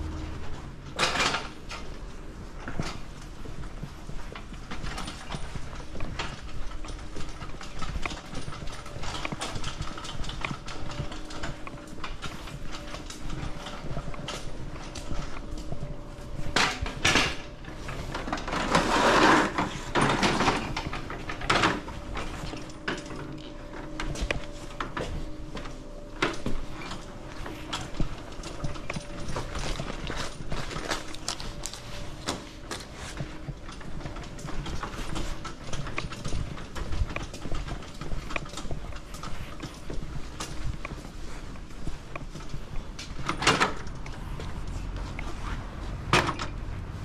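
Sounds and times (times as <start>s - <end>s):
clattering knocks and clicks: 0.0s - 47.0s
faint steady hum: 0.0s - 47.0s.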